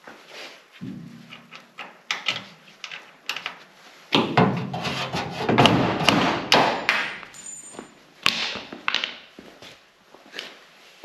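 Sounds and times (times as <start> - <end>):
metal knocks and clinks: 6.5 - 8.0.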